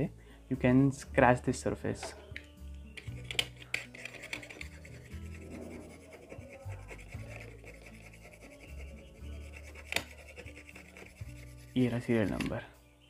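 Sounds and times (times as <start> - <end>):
background music with bass: 0.0 - 13.0
tool scraping label: 3.0 - 12.5.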